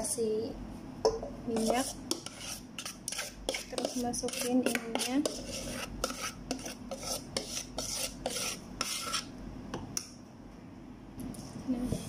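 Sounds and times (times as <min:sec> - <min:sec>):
spoon scraping batter from bowl: 0:01.5 - 0:09.3.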